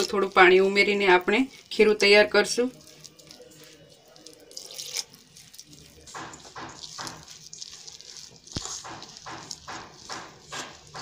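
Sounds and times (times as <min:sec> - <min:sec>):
batter mixing in steel bowl: 0:00.0 - 0:11.0.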